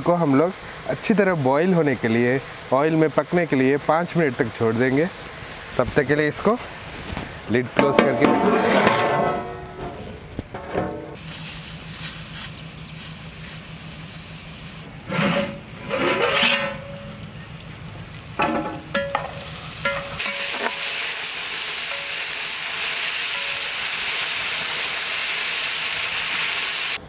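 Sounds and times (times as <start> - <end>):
vegetables sizzling in oil: 0.0 - 7.1, 18.1 - 27.0
metal clatters of pot lid and ladle: 7.8 - 10.0, 15.4 - 17.1, 18.4 - 20.8
low hum: 8.8 - 20.2.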